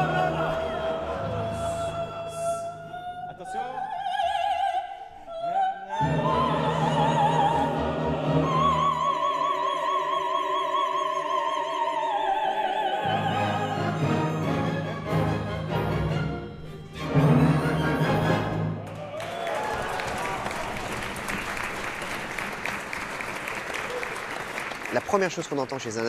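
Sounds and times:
female opera singer with vibrato: 0.0s - 14.8s
orchestra playing: 13.0s - 19.0s.

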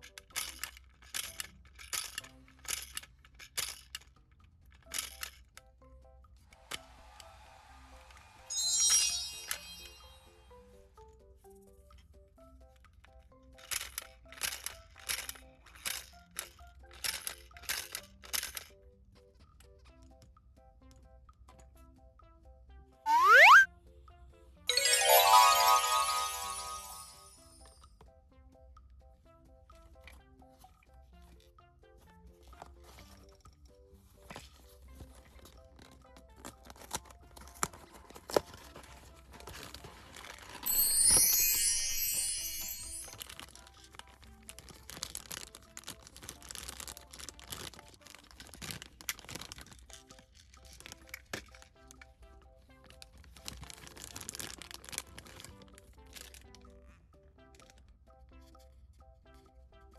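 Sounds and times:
scratchy plastic toy rattles: 0.0s - 5.8s, 12.8s - 19.9s, 32.4s - 52.1s, 52.9s - 57.9s
light background music: 0.0s - 59.9s
packaging tearing and crinkling: 44.5s - 49.8s, 53.4s - 55.5s.

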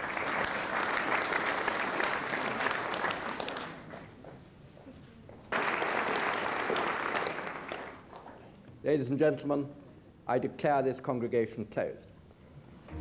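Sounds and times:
audience applauding: 0.0s - 3.9s, 5.5s - 8.1s.

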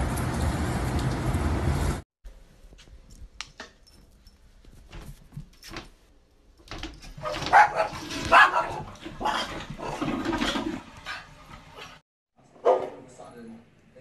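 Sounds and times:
small dog barking and yipping: 7.2s - 10.0s.

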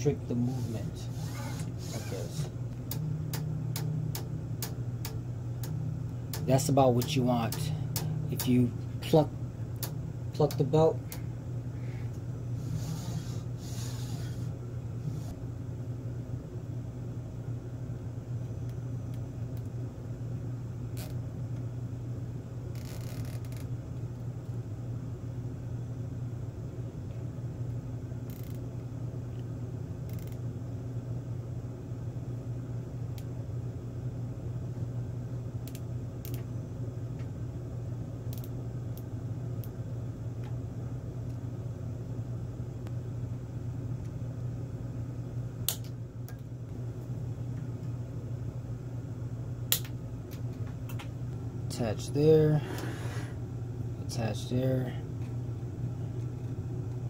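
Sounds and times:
low room hum: 0.0s - 57.0s.

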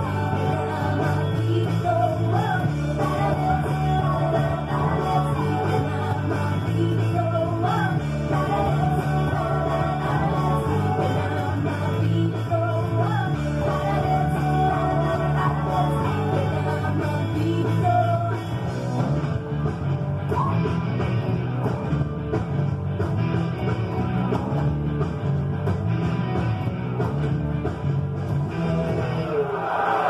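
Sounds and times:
person singing rock song: 0.0s - 21.6s
electric bass: 0.0s - 29.4s.

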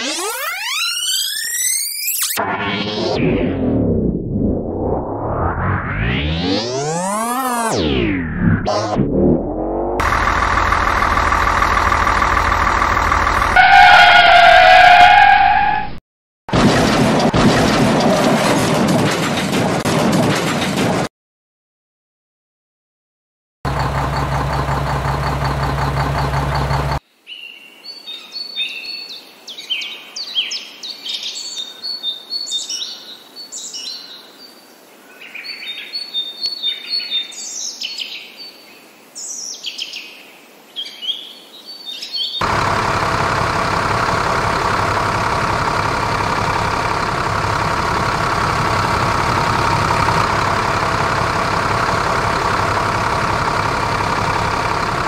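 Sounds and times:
loud engine running: 6.1s - 8.0s, 8.6s - 14.4s, 23.7s - 27.0s, 42.4s - 55.0s
birds chirping and trilling: 27.3s - 42.4s.

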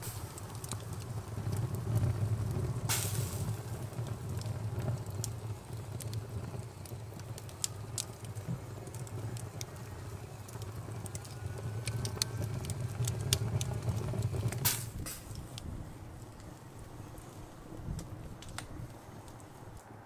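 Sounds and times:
fat popping and crackling on embers: 0.0s - 19.9s
low rumble of fire: 0.0s - 20.0s
burst of hiss: 2.9s - 3.4s.

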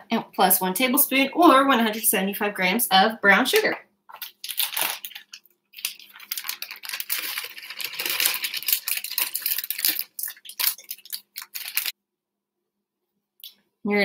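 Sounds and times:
plastic bag crinkling: 4.1s - 12.0s
sugar pouring into glass bowl: 4.2s - 11.9s.

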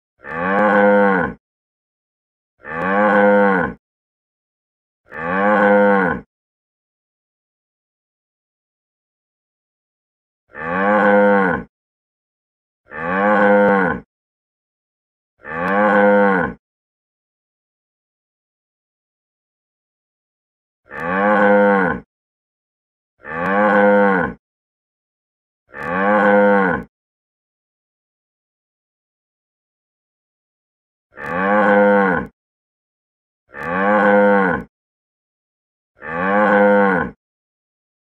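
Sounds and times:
cow mooing: 0.2s - 1.4s, 2.6s - 3.8s, 5.1s - 6.3s, 10.5s - 11.7s, 12.9s - 14.0s, 15.4s - 16.6s, 20.9s - 22.0s, 23.2s - 24.4s, 25.7s - 26.9s, 31.2s - 32.3s, 33.5s - 34.7s, 36.0s - 37.2s.

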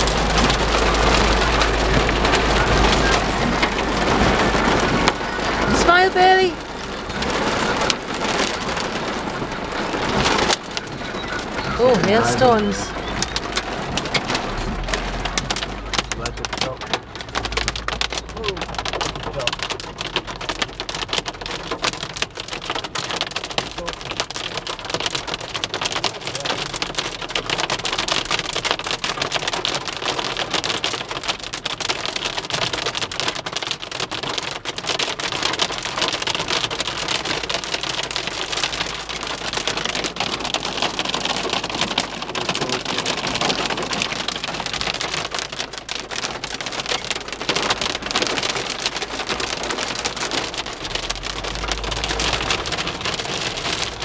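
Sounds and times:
hail and rain on car roof: 0.0s - 54.0s
low rumble: 12.4s - 20.4s.

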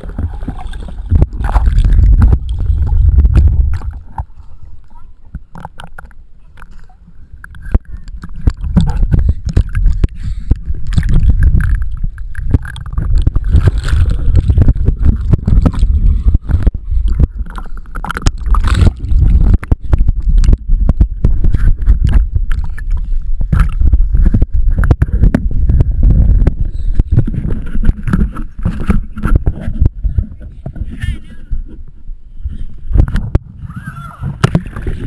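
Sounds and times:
water splashing against camera: 0.0s - 35.0s.

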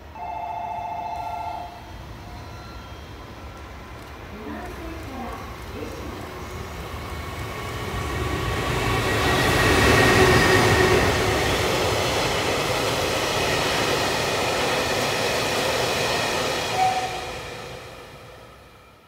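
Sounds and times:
electric locomotive passing: 0.0s - 19.0s
train wagons rolling on rails: 2.3s - 17.8s.

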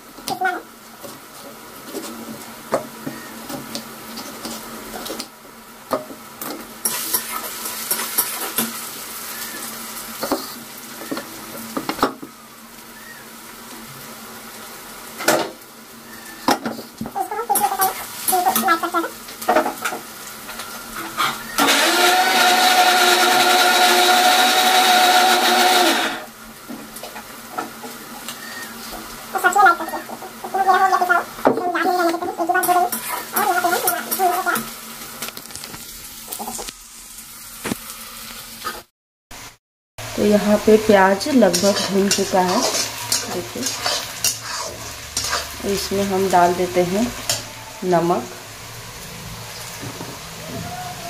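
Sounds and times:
onions frying in oil: 0.0s - 51.0s
mixer grinder motor running: 21.6s - 26.3s.

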